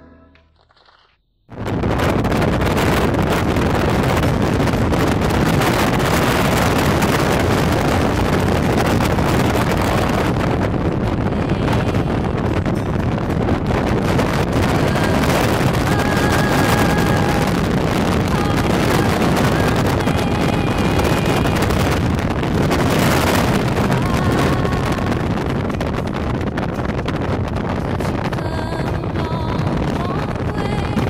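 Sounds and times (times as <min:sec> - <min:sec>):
car road noise: 0:01.5 - 0:31.0
wind on microphone: 0:01.5 - 0:31.0.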